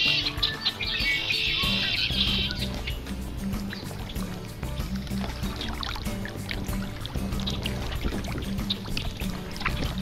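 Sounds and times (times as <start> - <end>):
blackbird trilled song: 0.0 - 6.0
background music with bass: 0.0 - 10.0.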